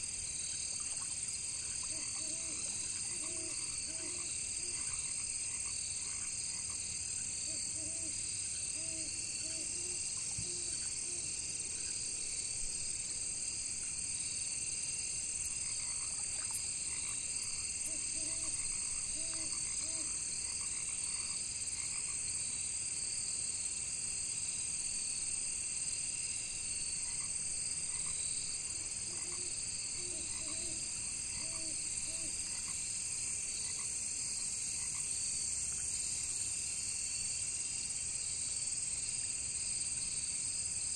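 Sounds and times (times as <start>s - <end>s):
cricket chorus: 0.0s - 40.9s
frogs croaking: 0.4s - 12.0s, 15.3s - 22.4s, 26.8s - 35.2s.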